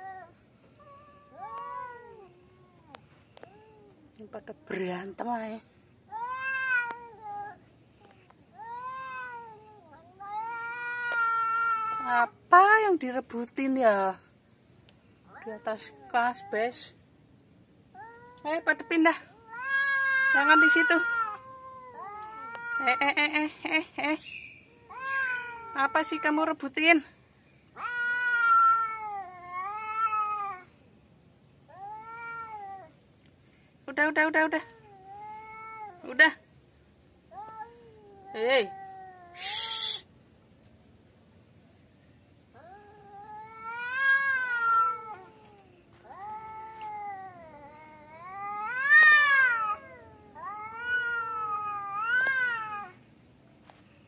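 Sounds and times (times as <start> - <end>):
cats yowling: 8.6 - 12.3, 18.0 - 23.2, 24.7 - 26.4, 27.8 - 30.7, 37.4 - 40.1, 42.6 - 53.0.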